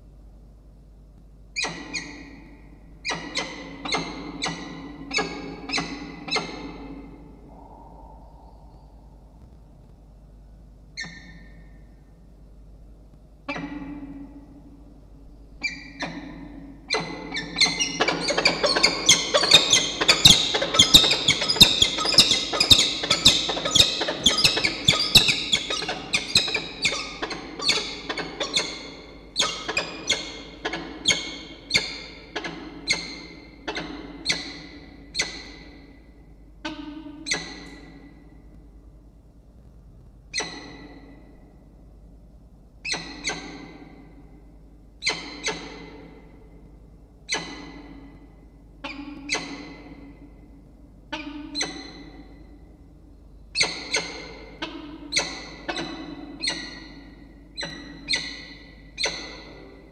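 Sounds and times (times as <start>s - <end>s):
falcons calling: 17.5s - 31.8s.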